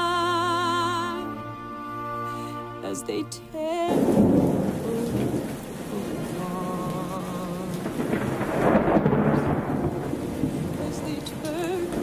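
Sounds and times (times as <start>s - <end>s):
steady rain: 0.0s - 12.0s
rolling thunder: 3.9s - 12.0s.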